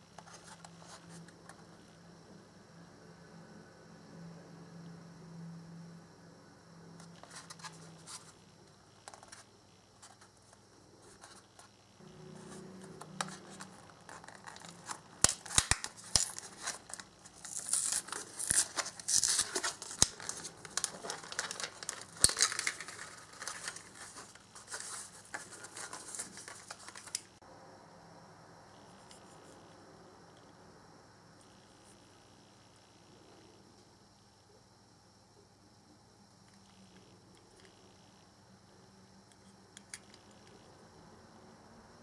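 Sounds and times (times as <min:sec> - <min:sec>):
faint hum: 0:00.0 - 0:42.0
plastic crinkling and tearing: 0:13.2 - 0:27.3
plastic blister pack snapping: 0:14.2 - 0:16.8, 0:17.4 - 0:23.6.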